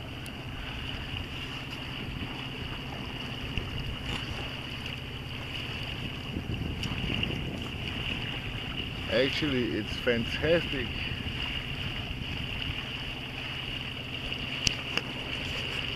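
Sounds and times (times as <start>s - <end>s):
diesel boat engine droning: 0.0s - 15.9s.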